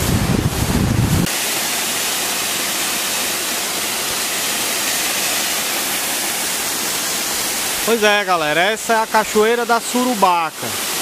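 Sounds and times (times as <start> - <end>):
wind buffeting microphone: 0.0 - 1.3
waterfall pouring onto rock: 1.2 - 11.0.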